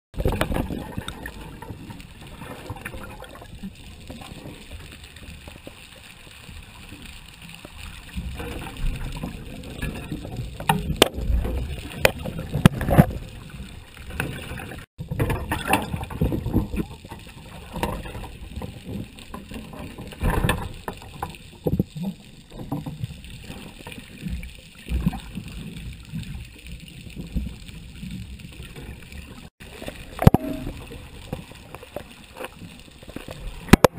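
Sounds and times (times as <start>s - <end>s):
underwater rushing and sloshing: 0.1s - 33.9s
sharp knocks underwater: 10.6s - 13.2s, 20.1s - 21.9s, 30.1s - 31.5s, 33.6s - 33.9s.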